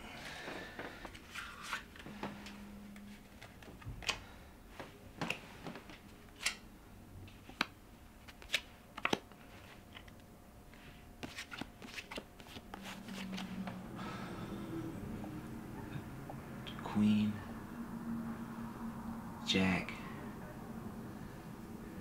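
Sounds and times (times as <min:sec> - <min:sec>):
playing cards shuffling: 0:07.3 - 0:10.2, 0:10.8 - 0:13.8.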